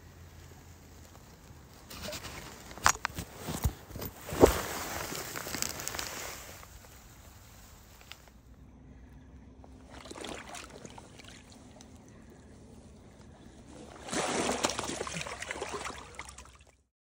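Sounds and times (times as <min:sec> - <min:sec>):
water splashing: 0:09.6 - 0:12.2, 0:13.4 - 0:16.8.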